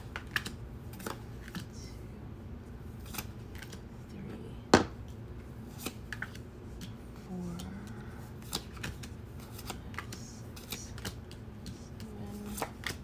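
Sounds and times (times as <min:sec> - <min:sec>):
cards clicking and snapping: 0:00.0 - 0:01.7, 0:03.0 - 0:03.8, 0:05.7 - 0:07.0, 0:07.6 - 0:13.0.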